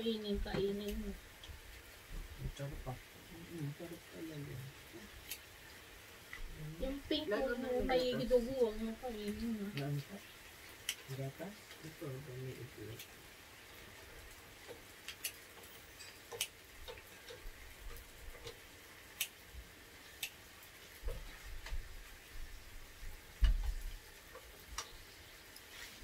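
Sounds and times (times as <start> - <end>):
dull low thumps: 1.5 - 3.0.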